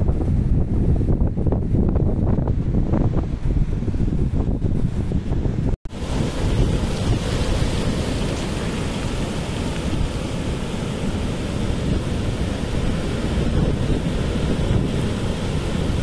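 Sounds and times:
wind buffeting microphone: 0:00.0 - 0:16.0
ocean surf breaking: 0:05.9 - 0:16.0.

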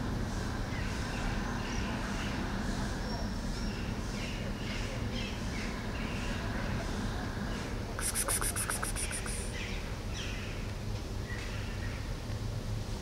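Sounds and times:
small birds chirping: 0:08.0 - 0:10.5.

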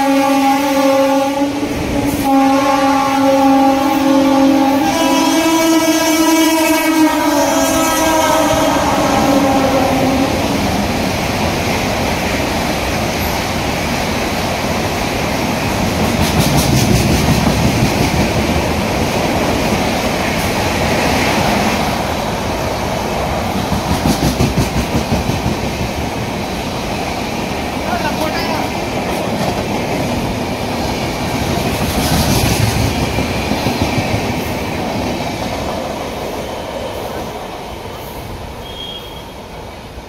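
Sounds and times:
train horn: 0:00.0 - 0:10.8, 0:38.6 - 0:39.5
train coaches rumbling: 0:00.0 - 0:40.0
wheels clickety-clack on rail joints: 0:10.8 - 0:38.4.

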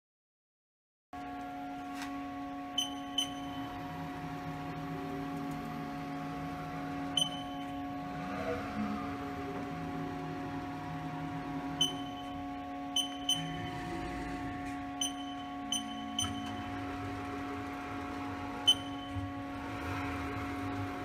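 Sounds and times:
machine hum: 0:01.2 - 0:21.0
short high beeps: 0:02.8 - 0:03.6, 0:07.2 - 0:07.8, 0:11.8 - 0:12.4, 0:13.0 - 0:13.8, 0:15.0 - 0:16.7, 0:18.7 - 0:19.2.

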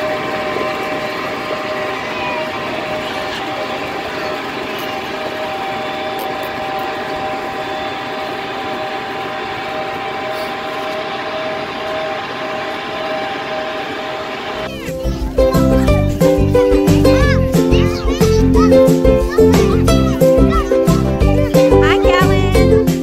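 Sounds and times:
tractor engine droning: 0:00.0 - 0:17.2.

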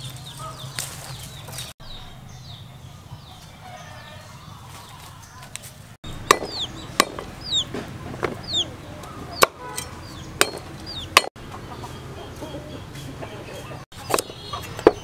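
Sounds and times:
chicken peeps: 0:06.5 - 0:10.2.

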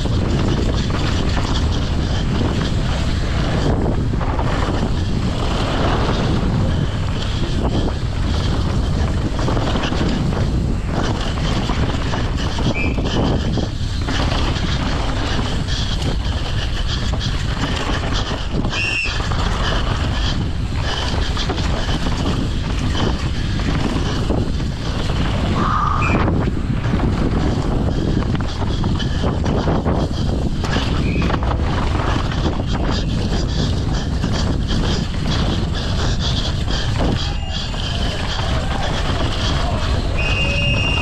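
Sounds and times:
bike rumble on trail: 0:00.0 - 0:41.0
wind rushing over microphone: 0:00.0 - 0:41.0
short high squeaks: 0:40.0 - 0:41.0.

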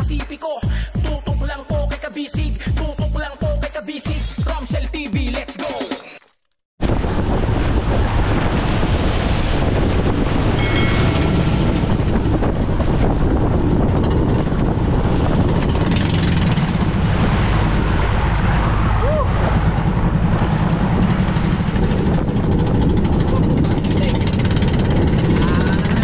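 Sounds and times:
boat engine rumble: 0:06.8 - 0:26.0
wind buffeting microphone: 0:06.8 - 0:26.0.

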